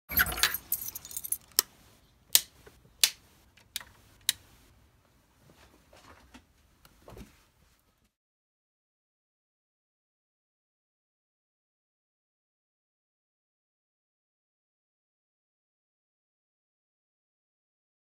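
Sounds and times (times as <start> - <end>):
keys jangling in a door lock: 0.1 - 1.6.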